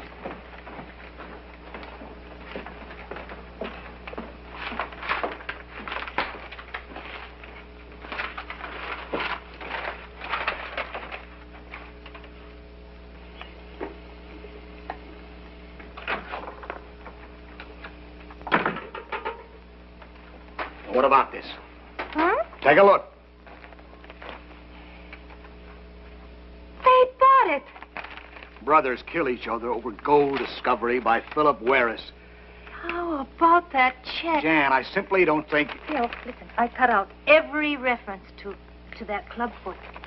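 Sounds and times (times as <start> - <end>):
low hum: 0.0 - 34.4
footsteps on wooden stairs: 0.1 - 7.6.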